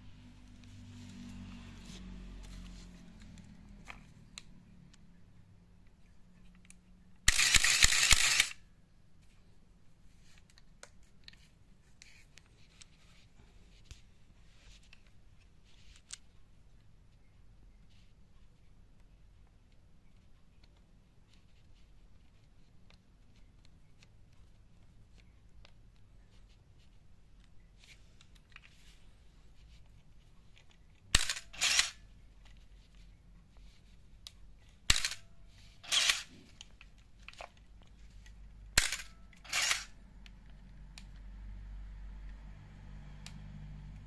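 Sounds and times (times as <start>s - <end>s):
camera shutter click: 7.3s - 8.6s, 31.2s - 32.0s, 34.9s - 36.3s, 38.8s - 40.0s
motor drive winding film: 7.3s - 8.6s, 31.2s - 32.0s, 35.8s - 36.3s, 38.8s - 39.9s.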